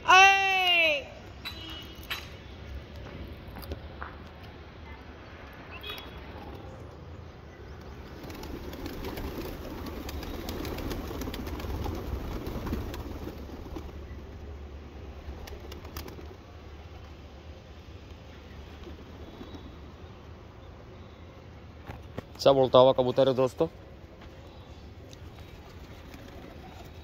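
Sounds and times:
pigeon wings flapping: 7.8 - 16.6, 18.7 - 19.8, 25.2 - 27.0
pigeons cooing: 25.2 - 27.0.

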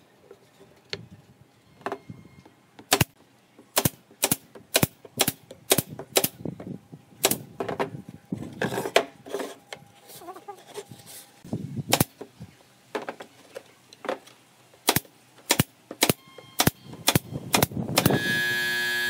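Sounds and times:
nail gun firing: 2.9 - 3.1, 3.8 - 6.4, 7.2 - 7.4, 11.9 - 12.1, 14.8 - 18.4.

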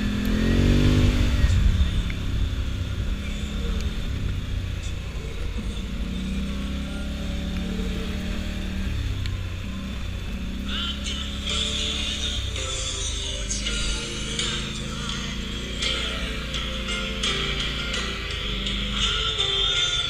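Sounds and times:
atv engine revving: 0.0 - 20.0.

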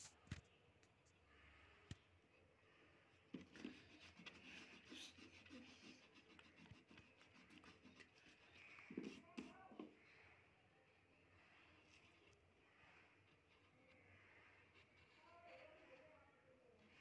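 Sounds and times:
eraser rubbing on paper: 3.3 - 9.9, 11.8 - 16.3
faint voice: 8.3 - 17.0.

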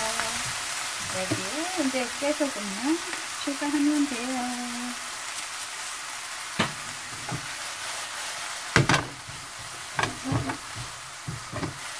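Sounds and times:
food sizzling in frying pan: 0.0 - 11.9
knocks of stirring food: 6.6 - 11.9.

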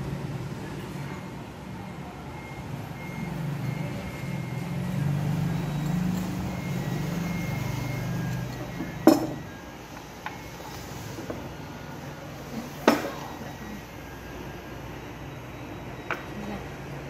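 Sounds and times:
porcelain dishes clinking: 8.2 - 9.6.

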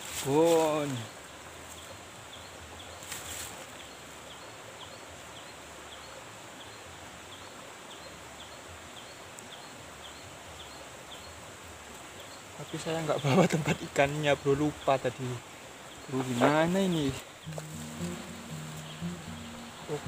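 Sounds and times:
brief rustle: 3.0 - 3.6
short high chirp: 17.5 - 20.0.

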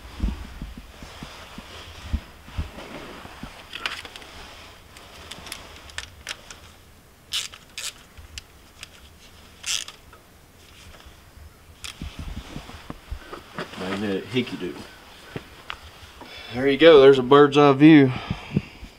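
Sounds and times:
socket ratchet clicking: 7.3 - 8.9.

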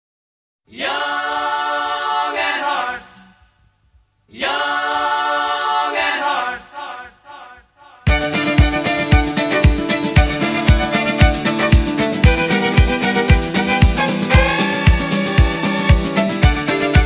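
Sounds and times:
person singing a cappella: 0.7 - 3.3, 4.3 - 8.1.

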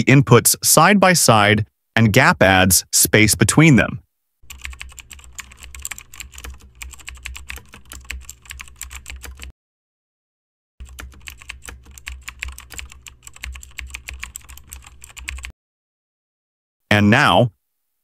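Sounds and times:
rapid keyboard typing: 4.5 - 9.5, 10.8 - 15.5.

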